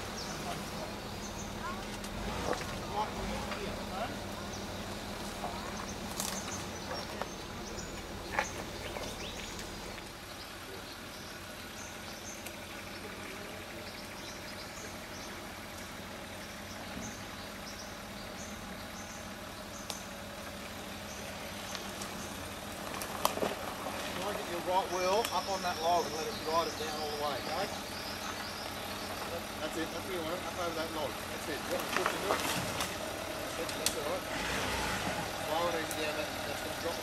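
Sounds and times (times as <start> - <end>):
bird chirps: 0.0 - 1.8, 4.4 - 20.2, 25.0 - 29.5
car engine running low: 0.0 - 37.0.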